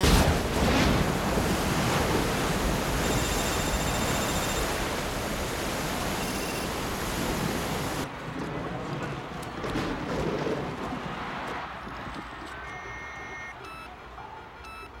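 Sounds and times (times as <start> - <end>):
heavy waves churning: 0.0 - 8.2
thunderclap: 0.0 - 11.5
wind: 0.0 - 15.0.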